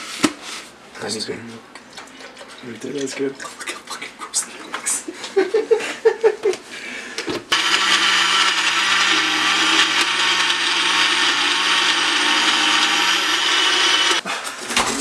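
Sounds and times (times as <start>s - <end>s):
blender running: 7.5s - 14.2s.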